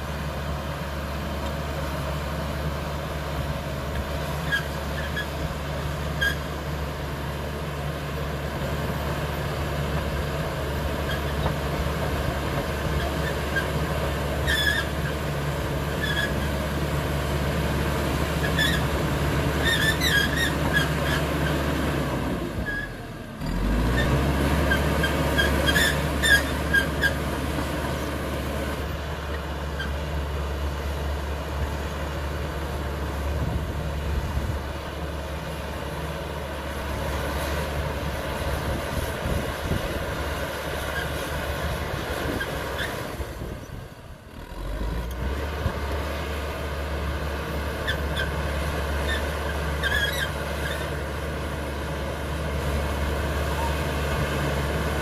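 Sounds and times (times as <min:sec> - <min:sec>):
bulldozer diesel engine running: 0:00.0 - 0:55.0
steel tracks squealing: 0:04.4 - 0:06.6, 0:10.9 - 0:11.6, 0:12.7 - 0:16.6, 0:18.4 - 0:21.6, 0:23.9 - 0:28.0, 0:40.4 - 0:43.8, 0:47.7 - 0:51.1, 0:53.4 - 0:54.0.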